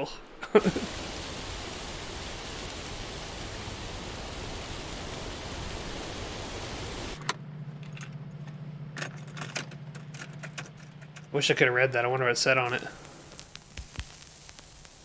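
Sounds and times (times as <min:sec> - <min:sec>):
steady hiss: 0:00.0 - 0:07.2, 0:11.3 - 0:15.0
low steady hum: 0:00.0 - 0:15.0.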